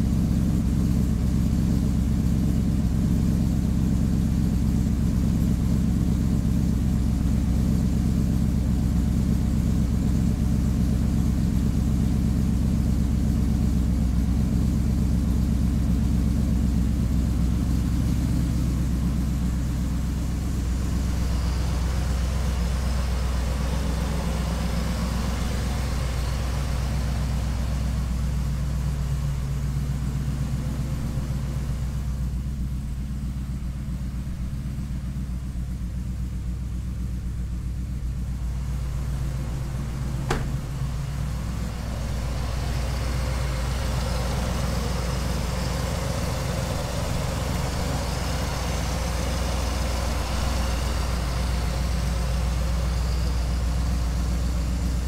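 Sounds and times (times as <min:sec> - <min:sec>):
throaty engine idling: 0:00.0 - 0:55.0
sharp click: 0:40.2 - 0:40.9.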